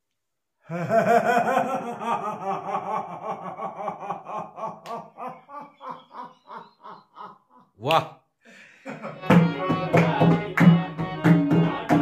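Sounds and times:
old man laughing loudly: 0.7 - 7.7, 8.8 - 9.3.

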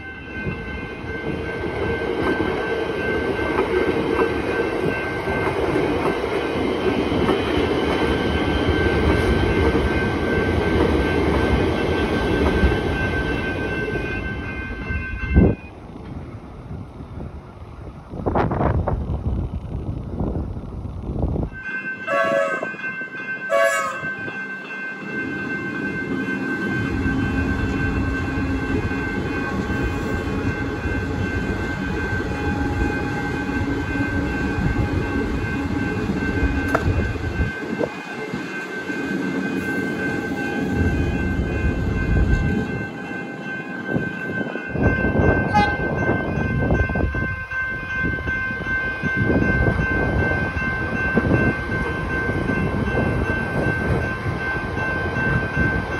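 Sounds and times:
crossing warning bell ringing: 0.0 - 15.8, 21.4 - 55.9
electric train rumble: 0.0 - 55.9
train horn blasts: 22.0 - 22.8, 23.5 - 24.3, 45.4 - 46.1.

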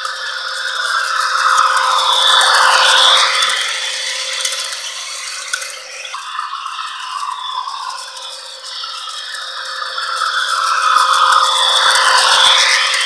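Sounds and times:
model train wheels clattering: 0.0 - 13.0
small motor whirring: 0.0 - 13.0.

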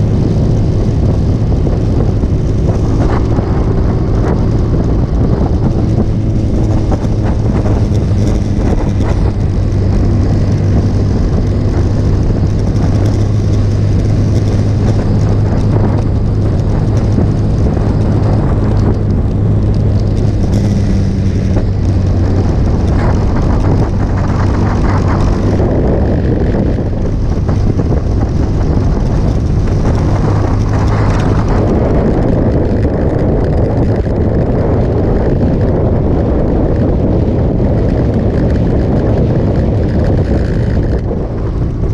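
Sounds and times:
motorcycle engine running: 0.0 - 41.9
wind on microphone: 0.0 - 41.9.

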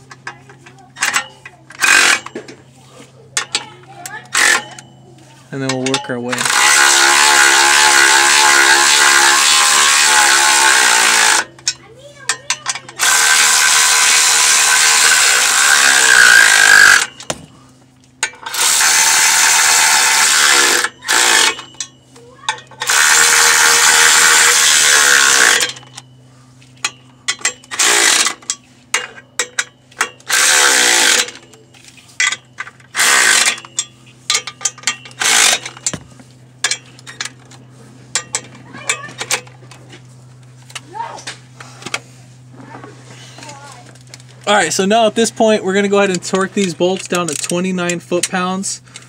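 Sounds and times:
electric impact gun: 1.8 - 2.3, 13.0 - 17.4, 18.5 - 21.7, 22.8 - 25.8, 27.7 - 28.4, 30.3 - 31.5, 32.9 - 33.6, 35.2 - 36.0.

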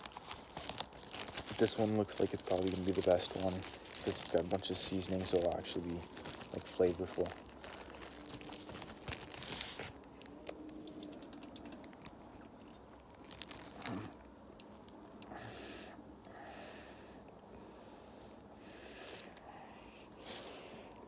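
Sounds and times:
rice grains crackling: 0.0 - 10.5.

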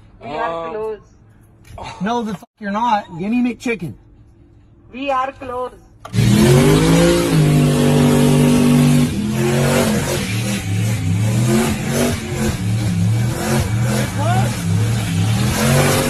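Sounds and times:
car engine revving: 6.1 - 16.0.

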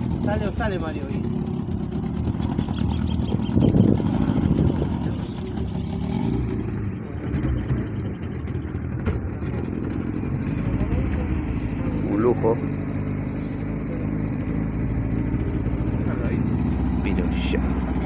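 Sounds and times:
boat motor running: 0.0 - 18.0.

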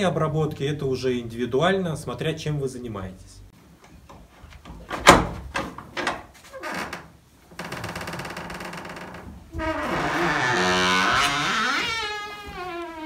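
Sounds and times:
door hinges creaking: 4.8 - 13.0.

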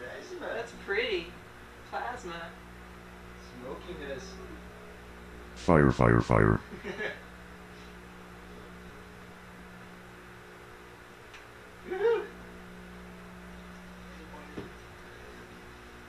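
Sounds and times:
microwave oven humming: 0.0 - 5.9, 6.8 - 16.0
short voice-like sound: 5.6 - 6.6.

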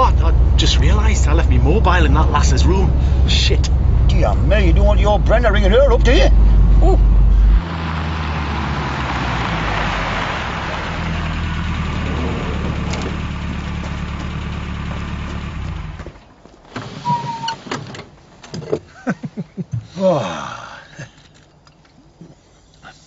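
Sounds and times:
car engine running: 0.0 - 16.4
road noise: 0.0 - 19.0
brief pitched sounds: 17.0 - 17.6.

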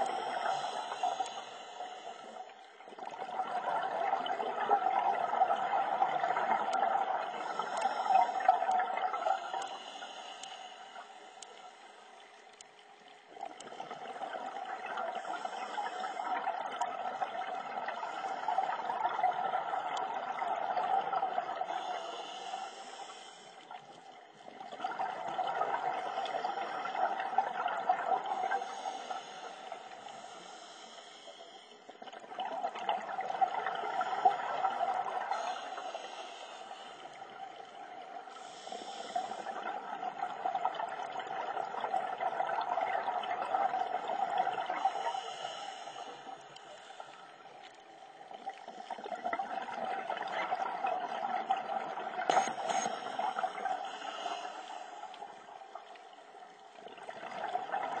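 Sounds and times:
diver breathing through regulator: 0.0 - 2.6, 6.6 - 12.0, 21.6 - 23.9, 28.3 - 31.9, 35.3 - 37.2, 38.3 - 39.7, 44.8 - 47.4, 52.3 - 55.4.

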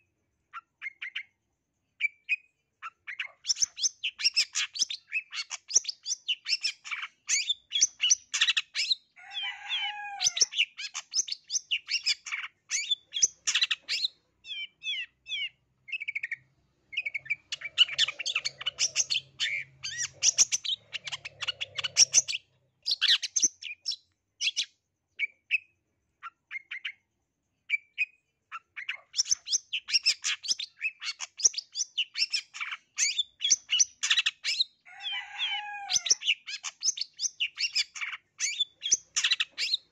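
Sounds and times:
bird chattering song: 0.0 - 1.4, 2.0 - 27.1, 27.7 - 39.9.

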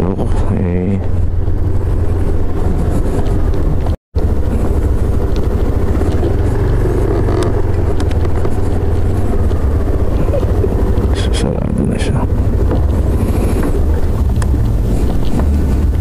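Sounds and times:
motorcycle engine rumbling: 0.0 - 16.0.

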